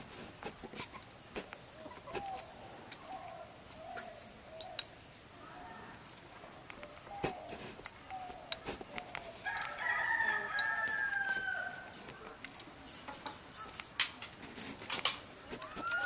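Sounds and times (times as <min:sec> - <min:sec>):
rooster crowing: 0:09.4 - 0:12.0
sharp clicks and knocks: 0:12.0 - 0:16.0.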